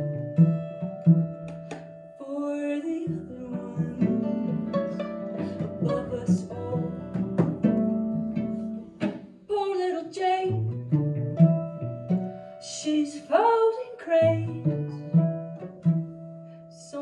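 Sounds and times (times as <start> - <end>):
acoustic guitar: 0.0 - 17.0
plucked cello: 0.0 - 17.0
woman singing: 2.2 - 4.6, 5.4 - 7.6, 9.5 - 10.6, 12.6 - 15.0, 16.7 - 17.0.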